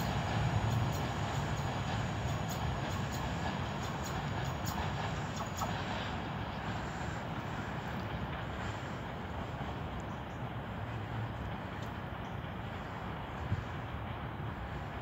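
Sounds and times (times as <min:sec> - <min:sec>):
diesel locomotive rumbling: 0:00.0 - 0:15.0
faint clicks: 0:09.9 - 0:10.5, 0:11.3 - 0:12.4.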